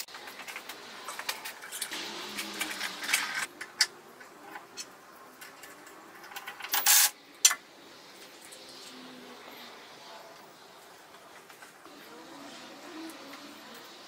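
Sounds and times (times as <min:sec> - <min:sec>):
clicks and knocks of handling parts: 0:00.0 - 0:07.6.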